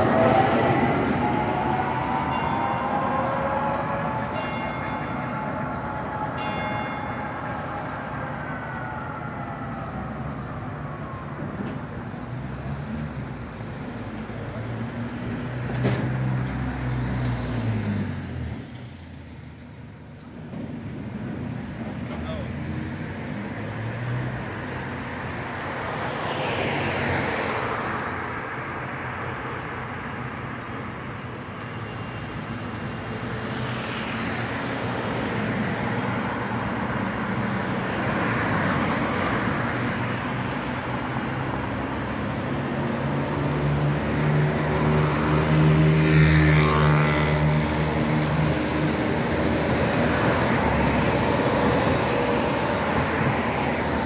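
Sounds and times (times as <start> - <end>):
tram motor whine: 0.0 - 12.4
cars passing: 0.0 - 54.0
electric tram passing: 0.0 - 54.0
motor scooter passing: 43.3 - 49.3.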